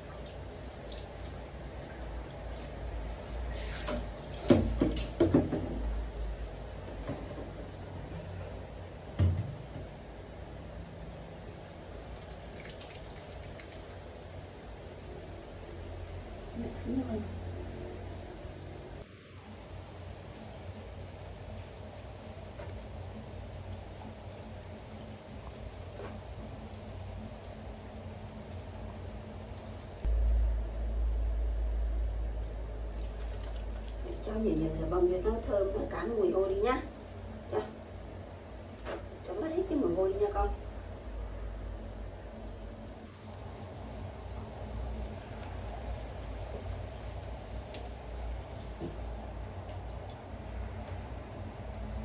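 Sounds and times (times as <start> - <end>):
low background hum: 0.0 - 52.0
water running from tap: 0.0 - 52.0
sharp knocks and clatters: 3.8 - 5.9.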